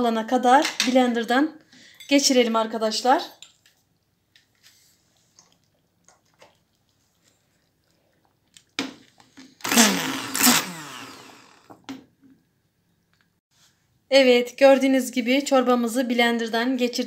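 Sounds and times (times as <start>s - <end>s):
immersion blender whirring: 9.6s - 11.9s.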